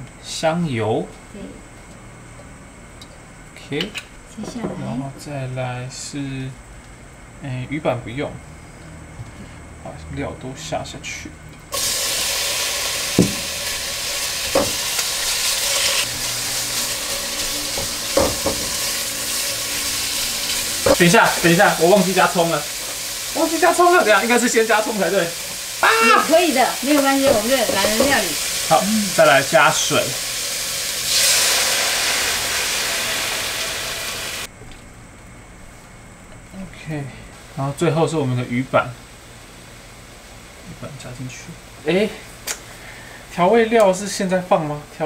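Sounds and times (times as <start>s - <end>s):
seafood sizzling in a wok: 11.7s - 34.5s
water hissing in hot pot: 11.7s - 34.5s
spatula knocking against pan: 17.8s - 18.8s.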